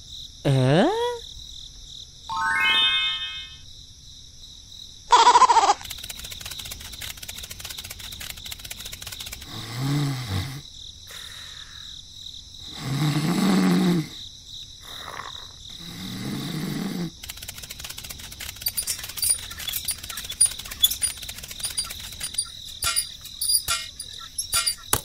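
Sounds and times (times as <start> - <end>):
slow low snores: 9.4 - 11.2, 12.6 - 14.2, 14.8 - 17.2.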